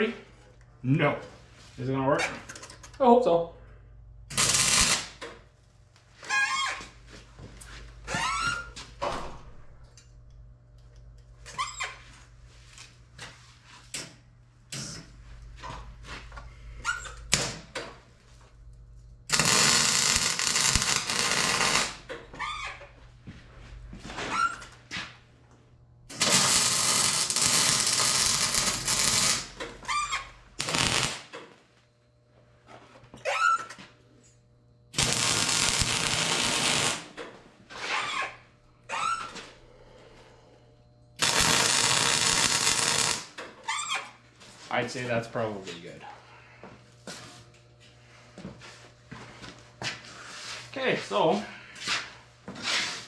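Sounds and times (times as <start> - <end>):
welder arc crackling: 4.3 - 5.3, 19.2 - 22.1, 26.1 - 31.4, 34.9 - 37.2, 41.2 - 43.5.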